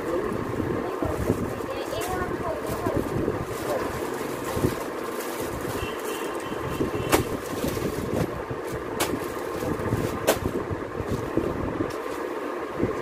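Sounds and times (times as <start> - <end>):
steady background rumble: 0.0 - 13.0
cloth and plastic rustling: 0.8 - 12.5.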